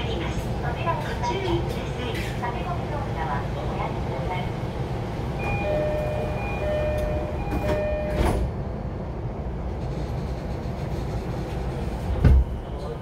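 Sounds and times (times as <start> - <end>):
low hum of standing train: 0.0 - 13.0
train doors shutting with thud: 5.3 - 8.8, 9.7 - 13.0
electronic door chime: 5.4 - 8.3.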